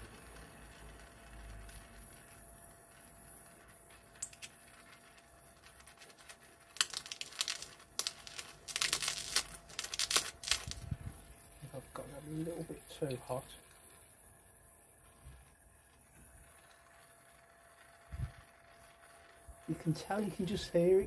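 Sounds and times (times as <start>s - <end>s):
weld spitting and crackling: 0.0s - 14.2s.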